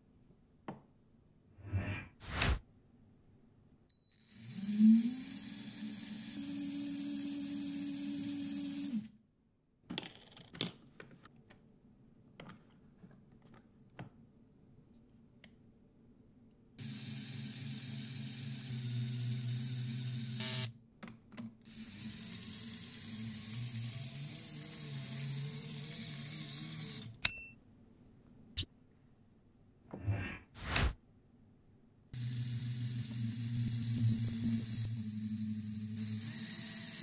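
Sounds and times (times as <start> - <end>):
small electric motor whirring: 4.2 - 9.1, 16.8 - 20.7, 21.7 - 27.1, 32.2 - 37.0.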